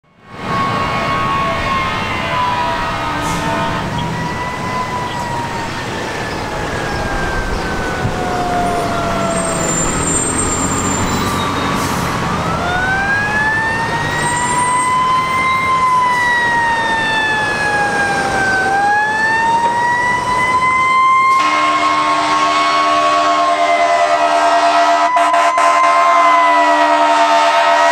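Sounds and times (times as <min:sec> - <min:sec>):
fire engine siren wailing: 0:00.0 - 0:27.9
air horn blast: 0:01.4 - 0:04.1, 0:21.3 - 0:27.9.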